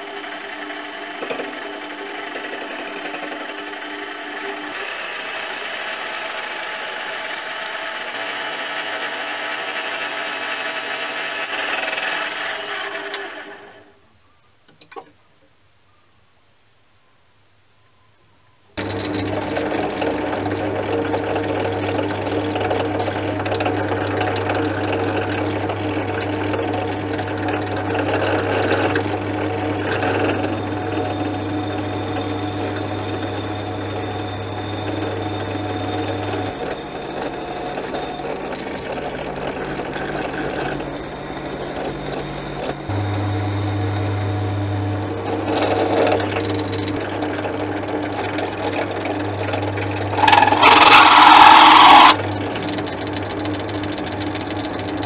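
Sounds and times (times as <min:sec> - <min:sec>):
drill bit cutting into metal: 0:00.0 - 0:13.8, 0:18.8 - 0:55.0
motor hum with a whine: 0:18.8 - 0:55.0.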